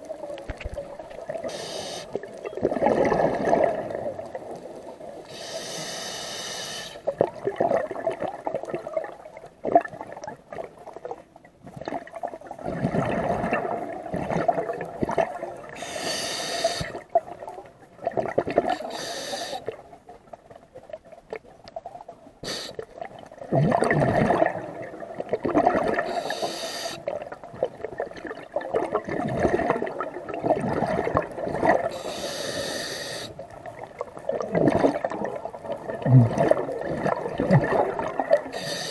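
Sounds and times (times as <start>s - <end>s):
gurgling exhaled bubbles: 0.0s - 5.2s, 7.1s - 11.0s, 11.7s - 16.0s, 16.6s - 19.1s, 23.0s - 32.7s, 33.4s - 38.9s
regulator hiss on inhale: 1.4s - 2.2s, 5.3s - 7.1s, 15.8s - 17.0s, 18.8s - 19.7s, 22.4s - 22.9s, 26.1s - 27.1s, 31.9s - 33.4s, 38.5s - 38.9s.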